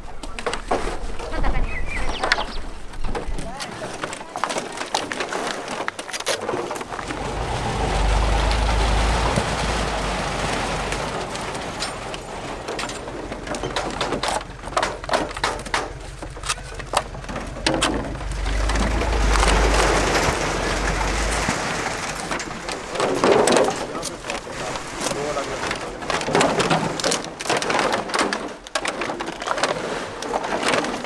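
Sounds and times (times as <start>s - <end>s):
plastic bottles crackling: 3.8s - 31.0s
low rumble: 6.8s - 24.9s.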